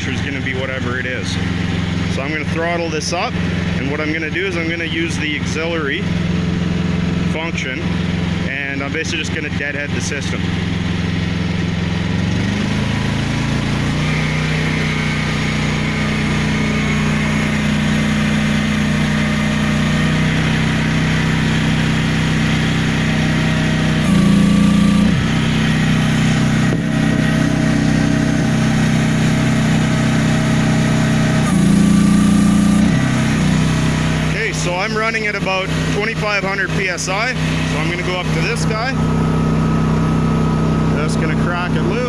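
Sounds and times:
excavator engine at high throttle: 0.0 - 42.0.

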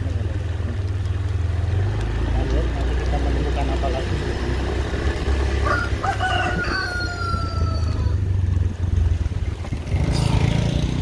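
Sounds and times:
rooster crowing: 5.5 - 8.3.

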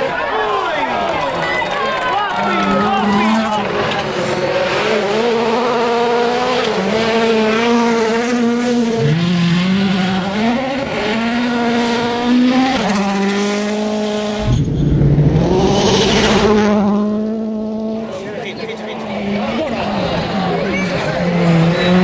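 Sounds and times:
rally car engines at full throttle: 0.0 - 22.0
car passing close: 2.7 - 18.2.

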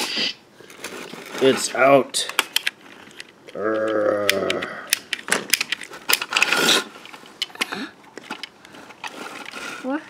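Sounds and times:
short hiss: 0.0 - 0.4
plastic toy clicking and clattering: 2.2 - 10.0.

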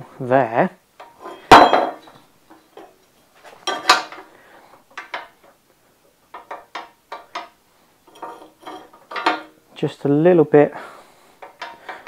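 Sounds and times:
steel piece clanking on frame: 1.0 - 2.2, 2.8 - 4.3, 8.1 - 9.6.

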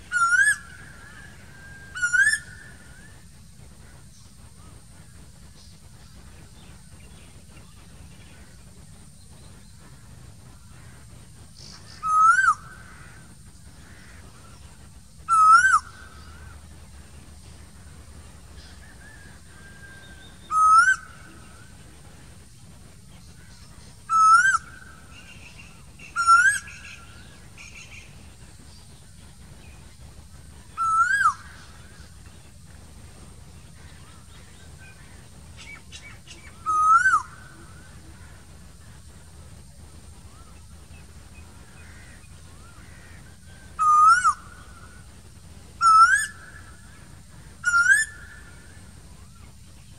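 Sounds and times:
koel whistled calls: 0.0 - 3.2, 11.9 - 13.2, 15.3 - 16.6, 18.8 - 21.7, 24.1 - 28.1, 30.7 - 32.1, 34.9 - 38.3, 43.8 - 45.0, 45.8 - 46.9, 47.6 - 48.8
other birds chirping: 0.0 - 3.2, 10.8 - 45.1, 45.8 - 49.6.

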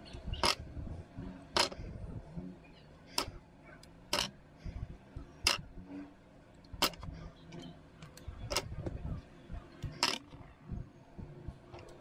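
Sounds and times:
plastic parts snapping: 6.8 - 7.1, 9.8 - 10.4.

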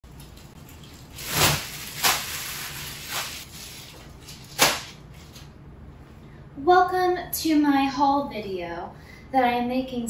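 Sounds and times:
plastic garment bags crinkling: 0.2 - 4.8.

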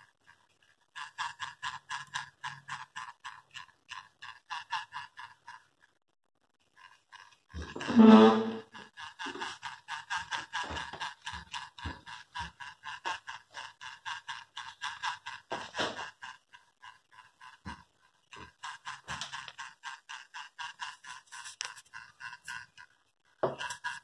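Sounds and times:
toy electric motor clicking rhythmically: 0.0 - 24.0.

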